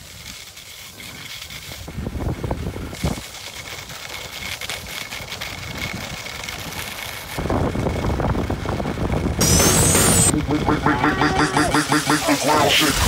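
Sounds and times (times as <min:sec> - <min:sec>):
skis scraping over snow: 0:00.0 - 0:10.3
wind rushing over microphone: 0:01.8 - 0:03.2, 0:07.4 - 0:10.8.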